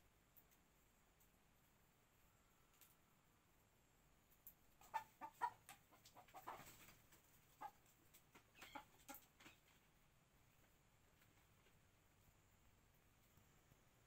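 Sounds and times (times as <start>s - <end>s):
faint chicken clucking: 0.0s - 14.0s.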